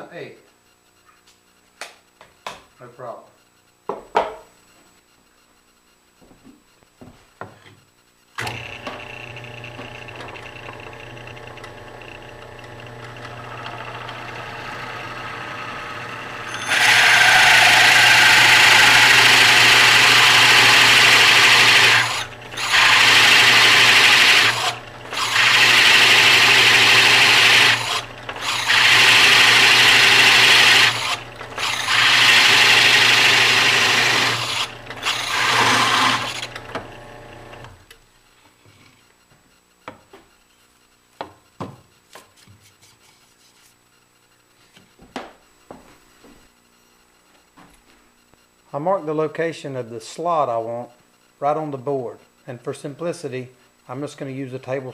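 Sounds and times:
drill press motor humming: 0:08.4 - 0:38.0
hole saw rasping through wood: 0:16.4 - 0:36.5.

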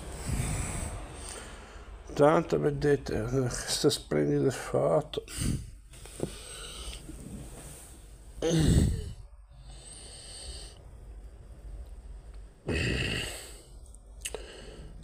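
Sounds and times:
man sighing: 0:08.4 - 0:09.2, 0:12.7 - 0:13.6.

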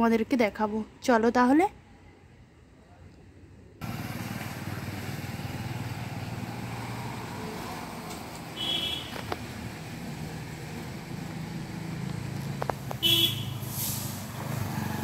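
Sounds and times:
outdoor background noise: 0:00.0 - 0:15.0
vehicle engine hum: 0:03.8 - 0:15.0.

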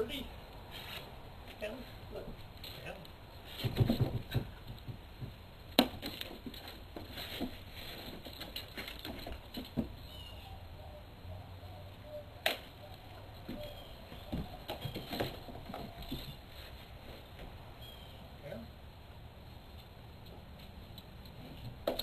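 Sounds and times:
cat paws thumping and scrabbling: 0:03.5 - 0:09.9.

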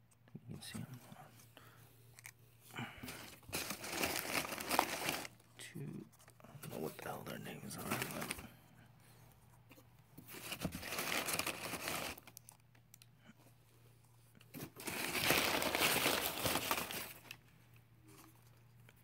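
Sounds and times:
packing paper rustling and crinkling: 0:03.0 - 0:05.5, 0:06.2 - 0:08.6, 0:10.2 - 0:12.6, 0:14.5 - 0:17.4.

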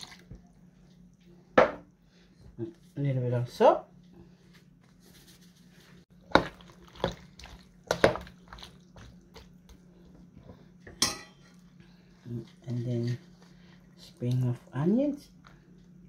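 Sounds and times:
spoon stirring wet food: 0:06.1 - 0:16.0.

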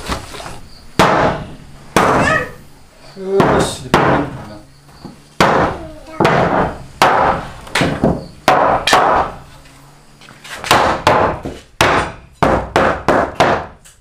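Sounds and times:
hammer driving nails into wood: 0:05.4 - 0:09.4, 0:10.6 - 0:14.0.

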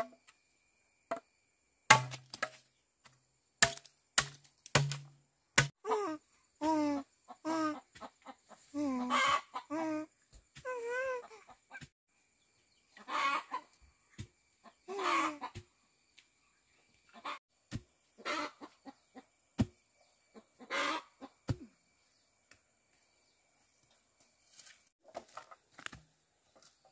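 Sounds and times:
chickens clucking: 0:07.3 - 0:09.8, 0:12.9 - 0:13.8, 0:14.6 - 0:15.7, 0:17.1 - 0:17.4, 0:18.2 - 0:19.4, 0:20.3 - 0:21.5.

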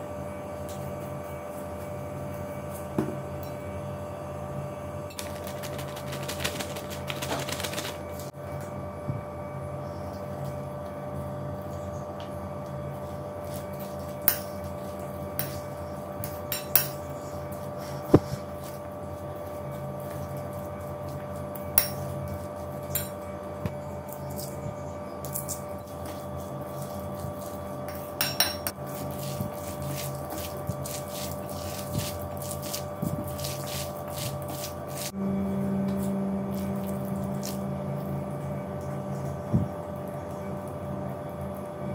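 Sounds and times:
steady hum: 0:00.0 - 0:41.9
spoon scraping and clinking bowl: 0:13.5 - 0:17.1, 0:21.6 - 0:23.2, 0:25.3 - 0:35.1.

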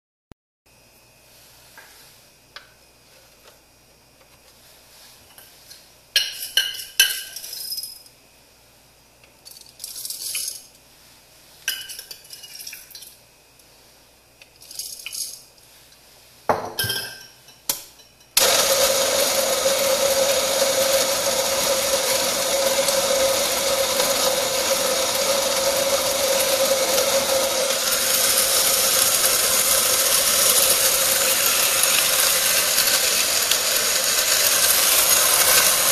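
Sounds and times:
metal parts clinking: 0:06.2 - 0:08.1, 0:09.4 - 0:10.7, 0:14.6 - 0:15.4
coffee grinder motor humming: 0:18.4 - 0:35.9.

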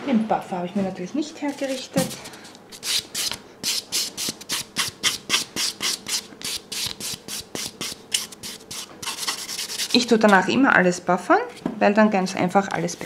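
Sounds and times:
nail buffer scratching: 0:01.4 - 0:10.4.

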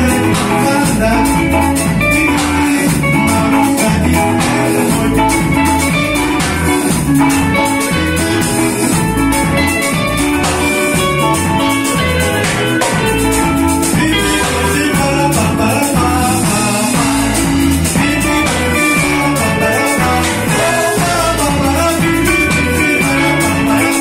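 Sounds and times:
band playing dance music: 0:00.0 - 0:24.0
guitar melody: 0:00.0 - 0:24.0.

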